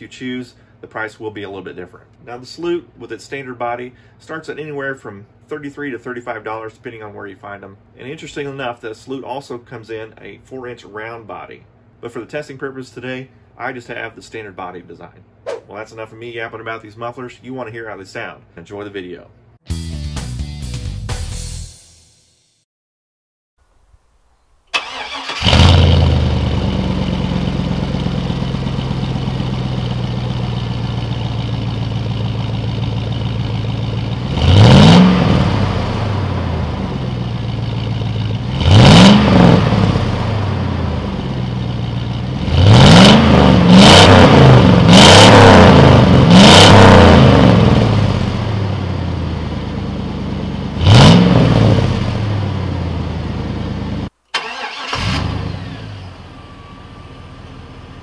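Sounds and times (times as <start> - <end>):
car engine idling and revving: 25.4 - 54.1, 55.0 - 58.0.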